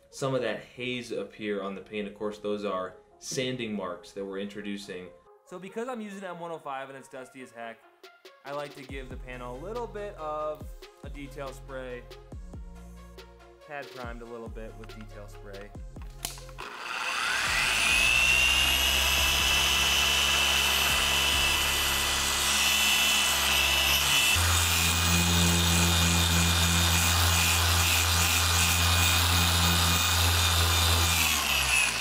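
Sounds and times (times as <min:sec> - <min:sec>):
polisher motor whining: 0:16.3 - 0:32.0.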